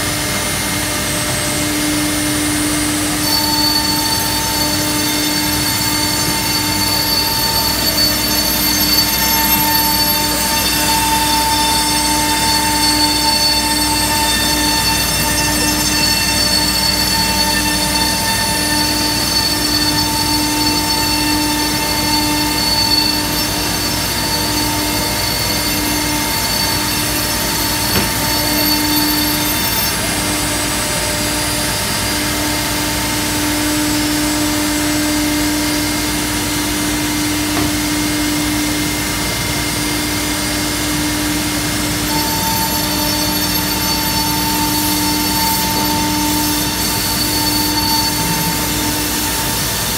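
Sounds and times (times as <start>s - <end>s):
router spindle whine: 0.0s - 49.9s.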